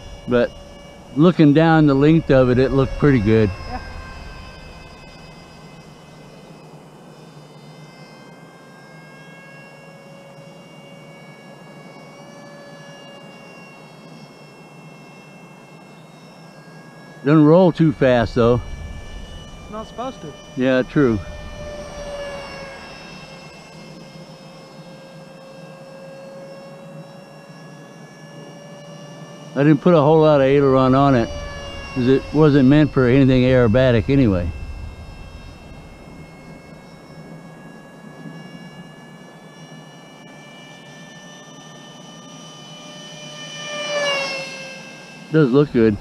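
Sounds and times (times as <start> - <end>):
electric ducted-fan motors whining: 0.0 - 46.0.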